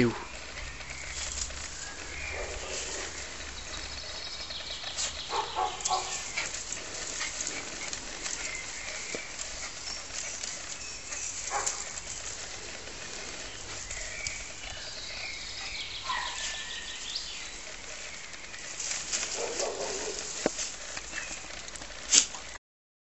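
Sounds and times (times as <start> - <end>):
birds chirping: 0.0 - 22.6
branches rustling: 0.0 - 22.6.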